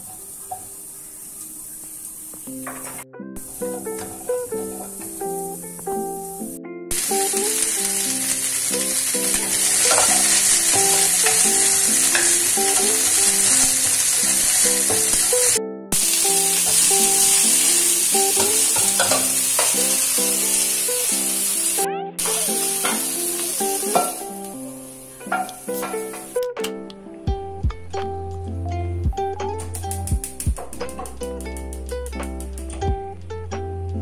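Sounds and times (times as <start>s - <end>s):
green beans sizzling in a wok: 0.0s - 26.4s.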